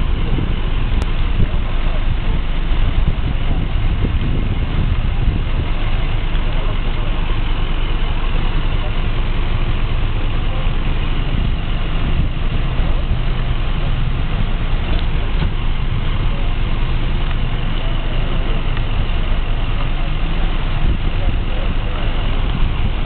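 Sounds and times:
emergency vehicle engines idling: 0.0 - 23.0
voices: 0.0 - 23.0.

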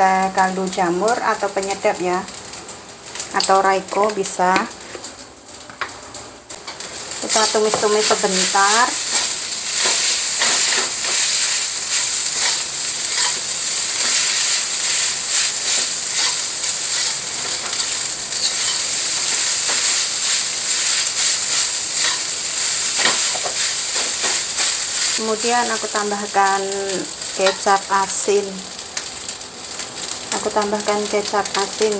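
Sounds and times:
rice sizzling in a wok: 0.0 - 31.9
metal spatula scraping wok: 9.0 - 18.9.

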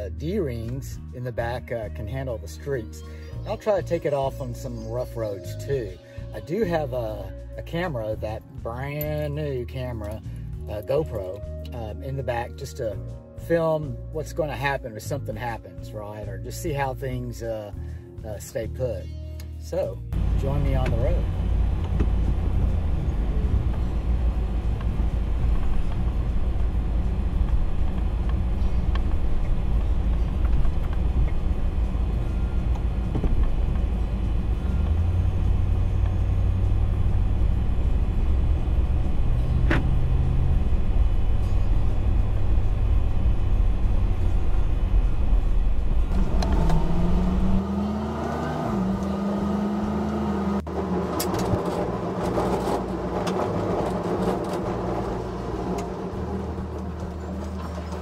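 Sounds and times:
road rumble: 0.0 - 58.0
truck engine: 20.1 - 58.0.

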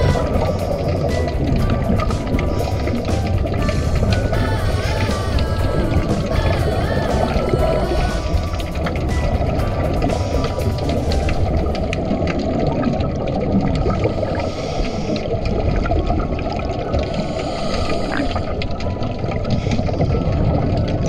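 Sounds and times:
scuba bubbles: 0.0 - 21.0
underwater rumble and gurgle: 0.0 - 21.0.

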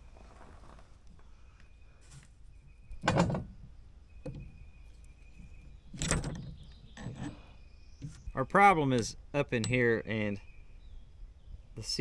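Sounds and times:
loose parts knocking inside housing: 3.0 - 4.6
metal clunks: 3.0 - 4.6, 5.4 - 7.4.

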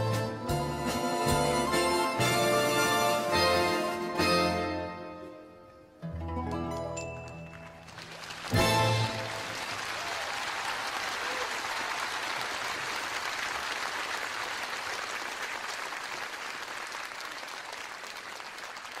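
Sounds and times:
audience applauding: 7.3 - 19.0.

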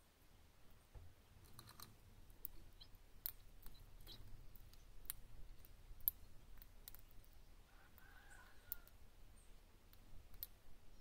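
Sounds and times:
birds cracking seeds clicks: 1.4 - 9.0, 9.8 - 10.6.

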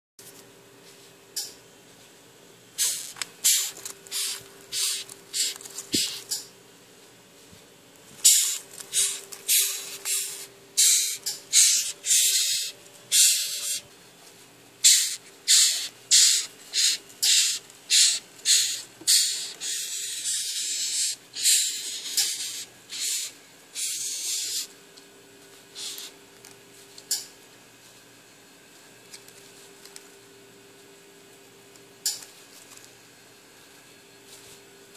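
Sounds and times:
beetle raspy hisses: 14.8 - 21.7.

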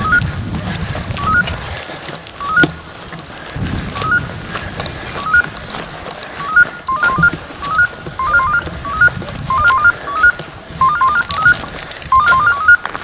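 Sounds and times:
electronic collar chirps: 0.0 - 0.3, 1.2 - 1.4, 2.4 - 2.8, 4.0 - 4.3, 5.2 - 5.6, 6.4 - 12.9.

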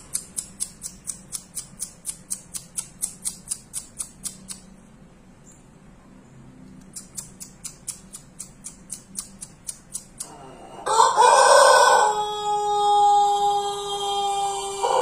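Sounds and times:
light even ticks: 0.0 - 4.7, 6.6 - 10.4
rooster crowing: 10.2 - 15.0.

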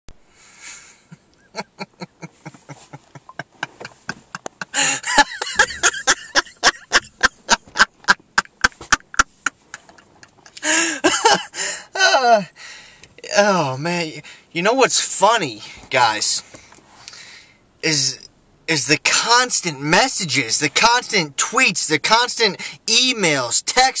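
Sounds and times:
man laughing: 1.0 - 12.5.

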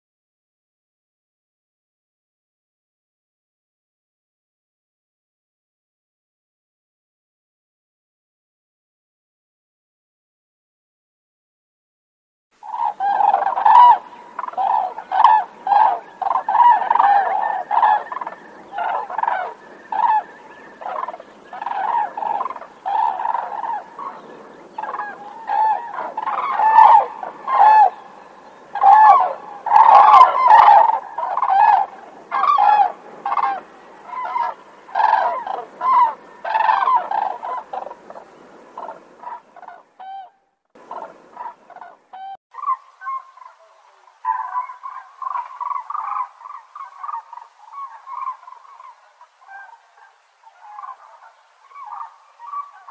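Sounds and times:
cranes honking: 12.6 - 40.2.

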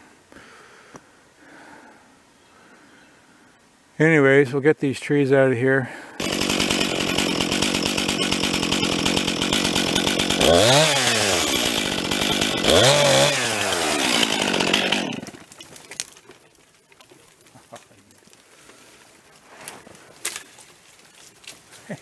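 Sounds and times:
chainsaw idling and revving: 6.2 - 15.6.

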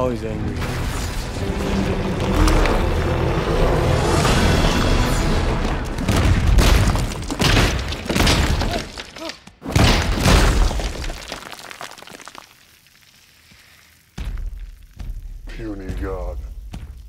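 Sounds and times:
film music: 0.0 - 7.1
crunching shattering debris: 0.4 - 3.1, 5.0 - 15.0
heavy body thuds on stone: 14.2 - 15.5.

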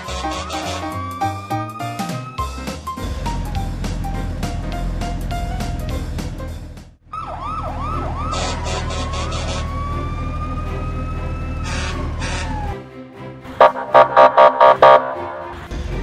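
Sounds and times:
background music: 0.0 - 16.0
siren wailing: 7.1 - 12.8, 13.6 - 15.6.

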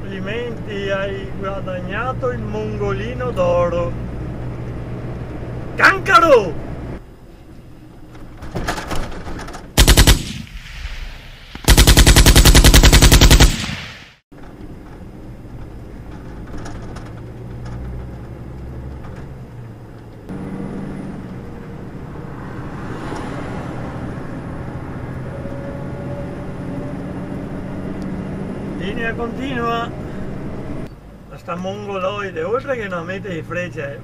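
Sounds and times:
road noise: 0.0 - 34.0
truck engine: 0.0 - 34.0
rapid gunfire-like cracks: 9.8 - 14.2.

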